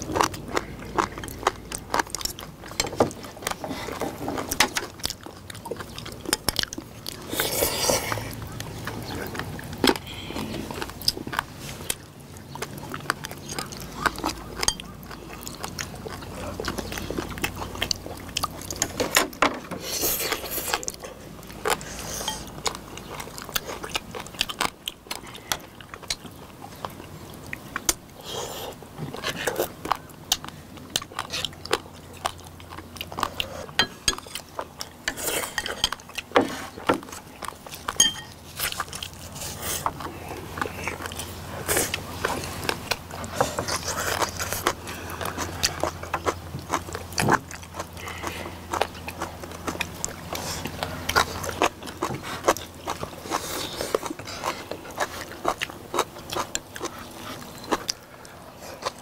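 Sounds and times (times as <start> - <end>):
slurping: 0.0 - 19.2
chewing: 0.0 - 59.0.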